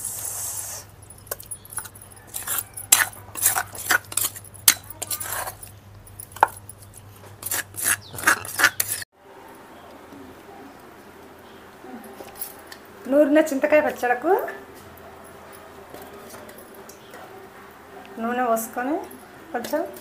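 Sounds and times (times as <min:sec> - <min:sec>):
spoon scraping stone mortar: 0:01.0 - 0:09.1
spoon clinking on metal container: 0:01.1 - 0:09.0.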